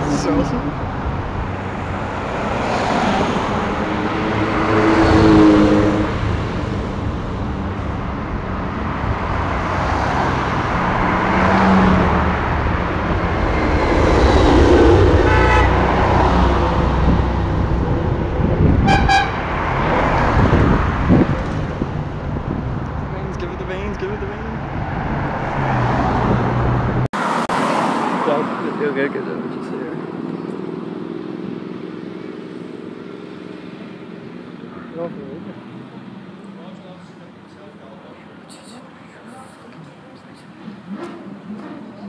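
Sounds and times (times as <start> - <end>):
cars driving past: 0.0 - 42.0
car horn tooting: 15.2 - 16.0, 18.8 - 19.5.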